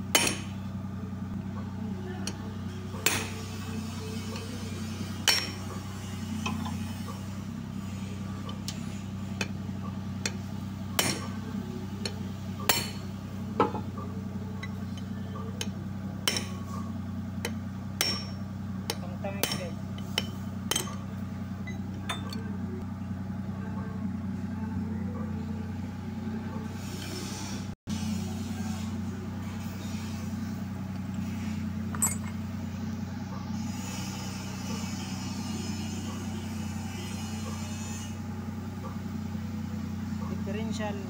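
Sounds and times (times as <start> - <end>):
steady low hum: 0.0 - 41.0
hammer striking steel rod: 0.1 - 0.6, 3.0 - 3.5, 11.0 - 11.4, 12.0 - 13.8, 14.9 - 16.7, 17.4 - 21.1.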